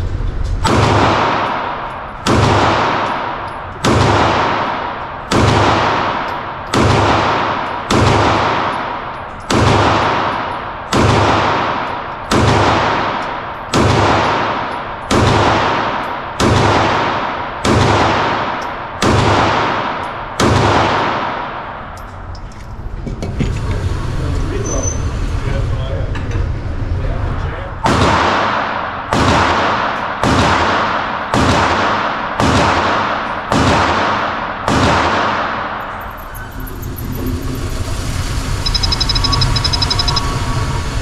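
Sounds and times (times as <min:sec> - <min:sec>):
pistol shots with echo: 0:00.6 - 0:22.0, 0:27.8 - 0:35.8.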